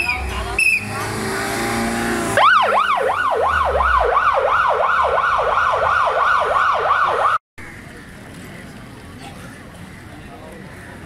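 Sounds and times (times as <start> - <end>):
ambulance siren yelping: 2.4 - 7.4.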